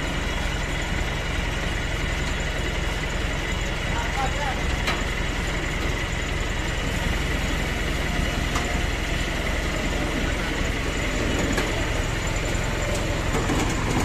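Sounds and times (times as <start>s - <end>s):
truck engine rumbling: 0.0s - 14.0s
winch whining: 6.4s - 14.0s.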